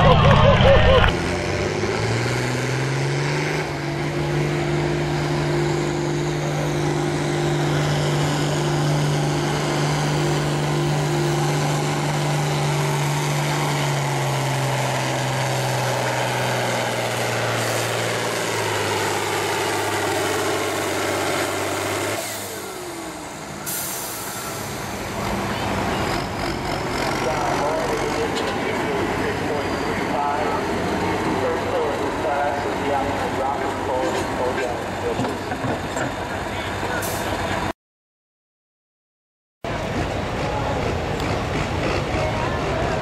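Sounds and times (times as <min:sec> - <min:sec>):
tractor diesel engine under load: 0:00.0 - 0:37.7, 0:39.7 - 0:43.0.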